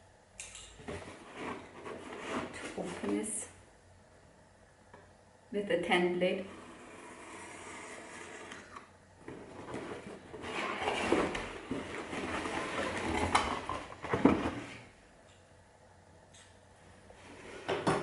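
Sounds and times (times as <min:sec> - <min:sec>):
cardboard scraping and rustling: 0:00.8 - 0:03.2, 0:06.6 - 0:14.9
knife cutting cardboard: 0:06.8 - 0:08.7.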